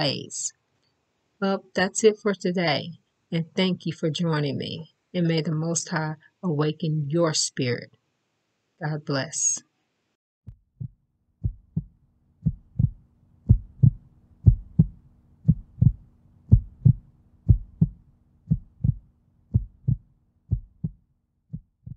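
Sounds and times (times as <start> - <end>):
heartbeat thumps: 10.5 - 21.9
faint low hum: 10.8 - 21.0.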